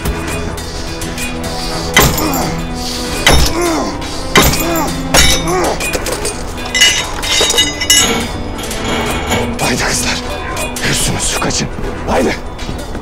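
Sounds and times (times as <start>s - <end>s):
music with steady drone: 0.0s - 13.0s
light metal clinking: 4.5s - 9.6s
metallic ring: 6.7s - 9.5s.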